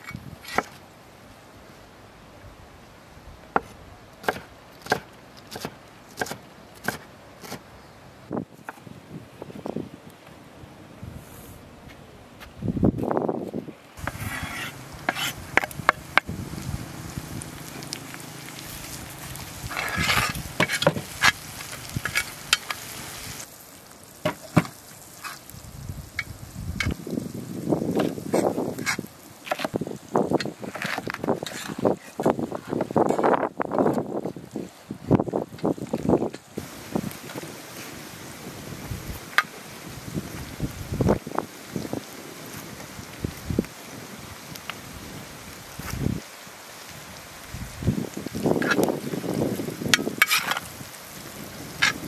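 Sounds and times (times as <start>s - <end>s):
metal spoon scraping a pan: 14.0s - 15.7s, 19.7s - 21.4s, 50.0s - 50.7s
vegetables sizzling in hot oil: 14.0s - 30.7s.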